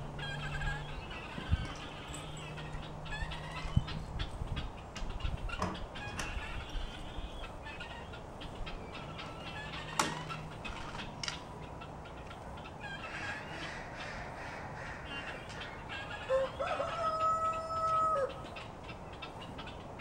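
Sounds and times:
poultry chattering: 0.1s - 20.0s
rooster crowing: 16.0s - 18.4s.

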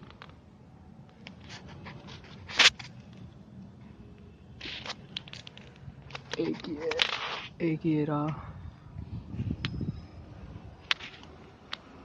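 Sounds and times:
rustling and scraping: 1.2s - 3.2s, 4.6s - 7.6s, 10.8s - 11.5s
sharp loud scrape: 7.0s - 7.6s.

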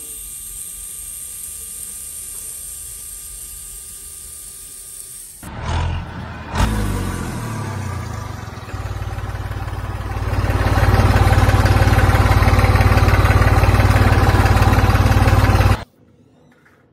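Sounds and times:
tractor engine running: 5.5s - 15.8s.

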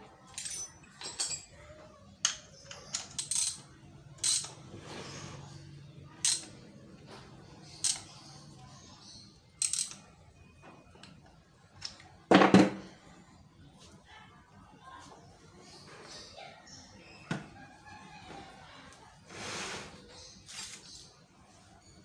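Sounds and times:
metallic clicks and clinks: 0.3s - 1.6s, 2.2s - 4.6s, 6.2s - 6.6s, 9.6s - 10.1s.

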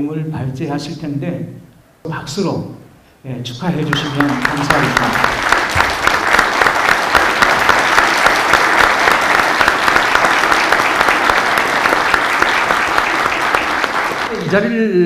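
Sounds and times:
audience applauding: 3.8s - 14.6s.

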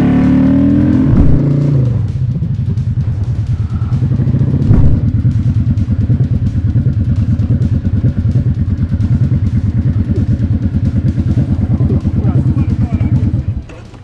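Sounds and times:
motorcycle engine running: 0.0s - 14.0s
loud thump: 1.1s - 1.5s, 4.6s - 5.5s.

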